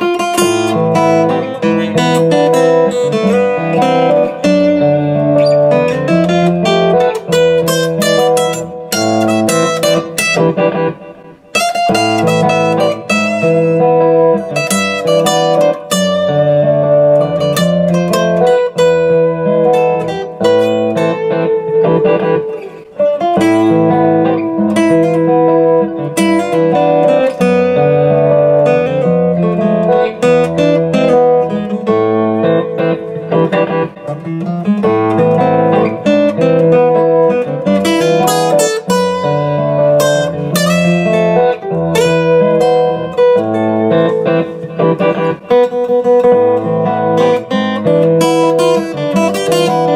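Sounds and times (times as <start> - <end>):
acoustic guitar flatpicked: 0.0 - 49.9.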